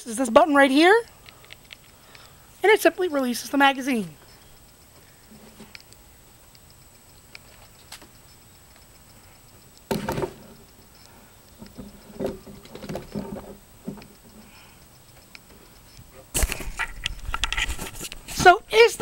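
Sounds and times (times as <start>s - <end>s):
gun clacking and rubbing on wood: 15.2s - 18.6s.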